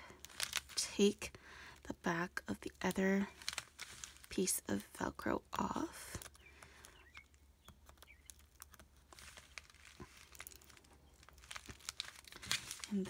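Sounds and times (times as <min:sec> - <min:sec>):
plastic envelope crinkling: 0:00.0 - 0:05.0, 0:05.9 - 0:13.0
velcro backing peeling: 0:00.2 - 0:00.9, 0:02.7 - 0:04.4, 0:06.1 - 0:13.0.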